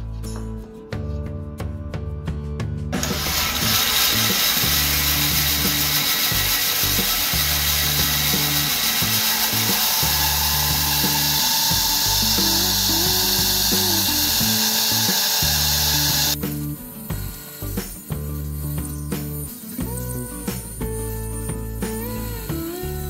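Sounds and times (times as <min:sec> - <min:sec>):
background music with bass line: 0:00.0 - 0:23.0
band saw cutting wood: 0:03.0 - 0:20.9.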